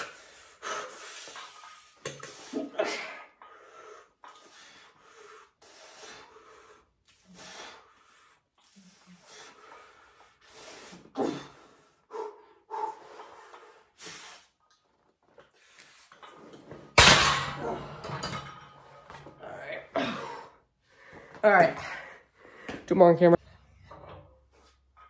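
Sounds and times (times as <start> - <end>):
man breathing hard: 0.0 - 1.7, 2.3 - 14.6, 19.9 - 22.8.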